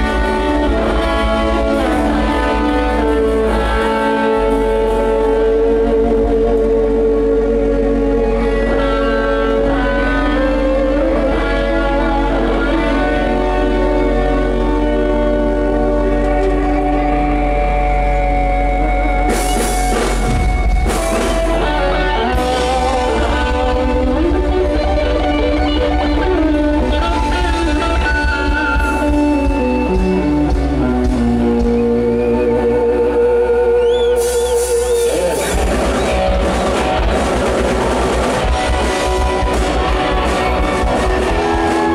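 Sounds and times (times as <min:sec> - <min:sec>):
live band with electric guitar: 0:00.0 - 0:41.9.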